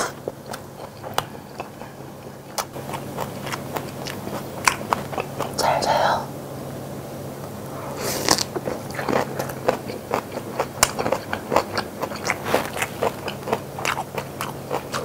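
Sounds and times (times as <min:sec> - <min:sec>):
person chewing food: 0:00.0 - 0:06.0, 0:07.9 - 0:15.0.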